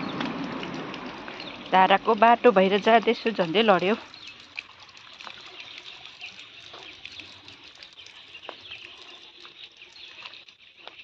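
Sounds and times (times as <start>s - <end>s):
birdsong chirping: 0.0s - 11.0s
footsteps on stone and gravel: 6.7s - 7.0s, 8.4s - 11.0s.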